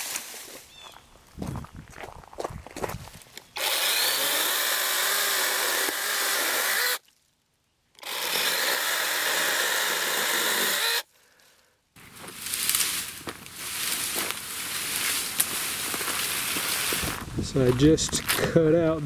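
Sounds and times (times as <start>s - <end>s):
electric chainsaw cutting branch: 3.6s - 7.0s, 8.0s - 11.1s, 12.3s - 17.2s.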